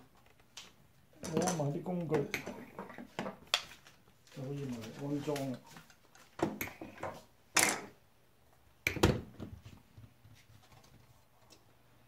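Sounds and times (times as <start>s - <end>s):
objects knocking and clattering: 1.2s - 3.7s, 6.3s - 8.0s.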